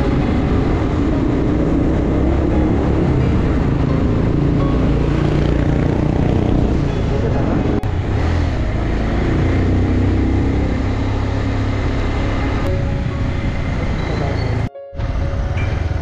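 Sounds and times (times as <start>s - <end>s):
motorcycle engine running: 0.0s - 16.0s
road noise: 0.0s - 16.0s
wind noise: 12.2s - 16.0s.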